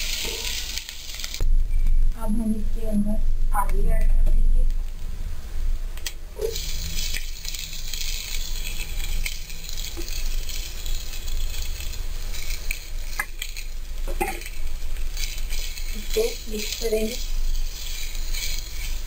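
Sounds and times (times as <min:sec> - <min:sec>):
oil sizzling in a wok: 0:00.0 - 0:01.4, 0:05.1 - 0:19.0
spatula stirring in a pan: 0:00.0 - 0:01.4, 0:06.4 - 0:19.0.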